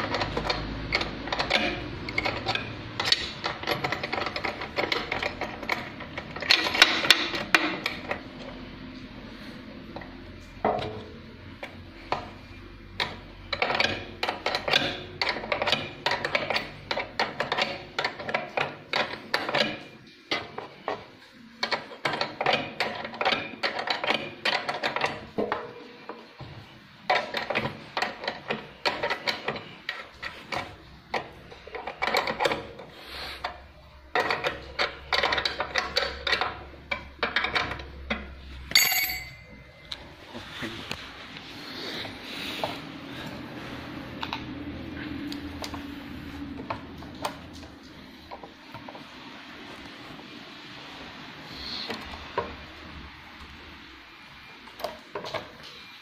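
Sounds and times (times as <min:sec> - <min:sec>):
wrench clicking on metal bolts: 0:00.0 - 0:08.2, 0:13.0 - 0:21.0, 0:34.1 - 0:40.0.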